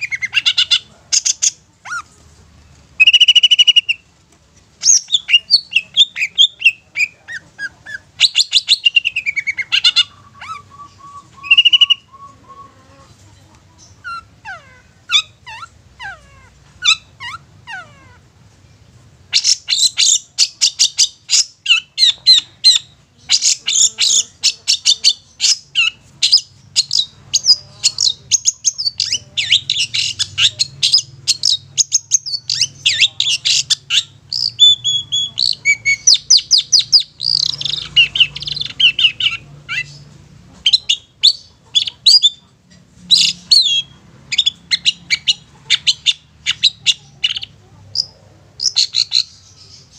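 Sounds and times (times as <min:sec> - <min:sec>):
bird chattering song: 0:00.0 - 0:02.2, 0:03.0 - 0:04.0, 0:04.8 - 0:49.9
high bird calls: 0:03.0 - 0:04.0, 0:04.8 - 0:13.1, 0:19.3 - 0:42.5.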